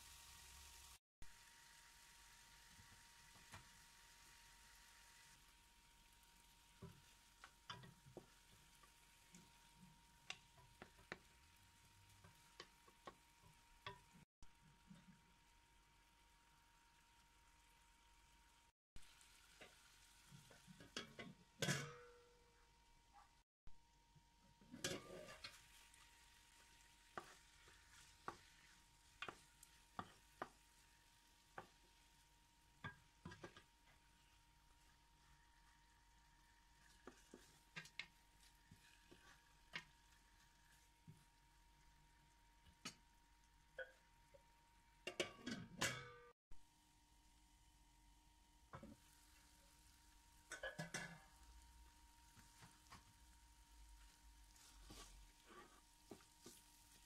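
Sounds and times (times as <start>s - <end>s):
chicken frying: 0.0s - 45.9s, 46.5s - 57.0s
wooden spatula knocking in pan: 6.8s - 11.4s, 27.1s - 30.9s, 31.5s - 31.9s.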